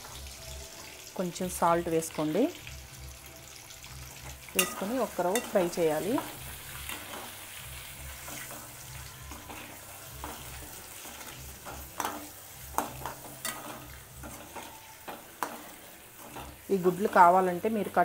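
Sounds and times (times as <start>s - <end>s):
eggs sizzling in oil: 0.0s - 18.0s
metal spatula scraping a pan: 3.8s - 18.0s.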